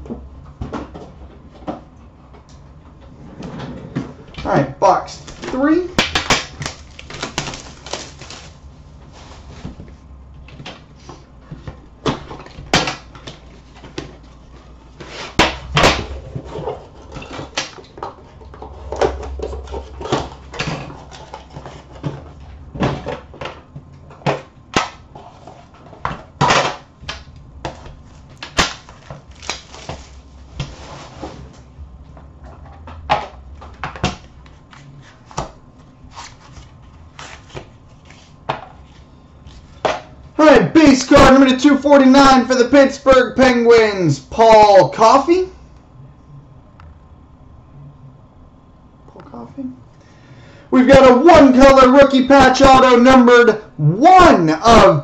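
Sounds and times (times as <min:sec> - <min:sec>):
cellophane wrap crinkling: 0:05.2 - 0:09.6, 0:28.2 - 0:30.3.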